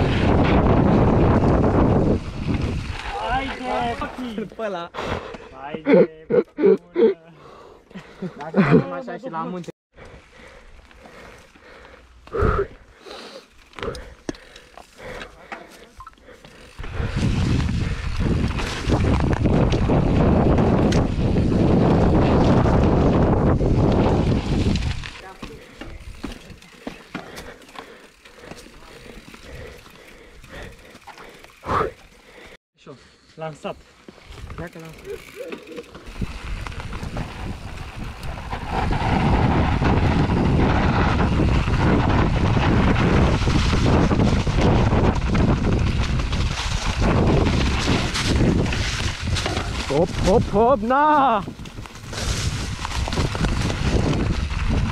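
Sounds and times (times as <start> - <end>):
wind buffeting microphone: 0.0 - 4.0, 16.7 - 26.6, 36.1 - 50.8, 51.4 - 54.9
bike tyre roar: 0.0 - 4.2, 10.0 - 32.6, 34.1 - 54.9.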